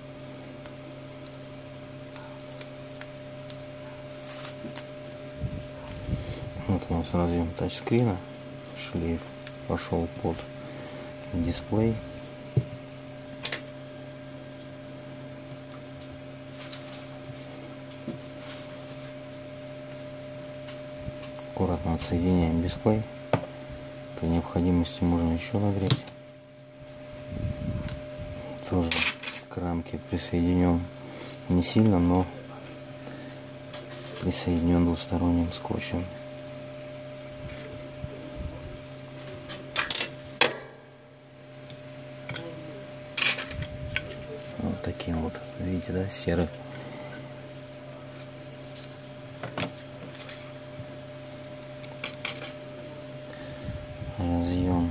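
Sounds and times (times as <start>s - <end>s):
electrical hum: 0.0s - 54.9s.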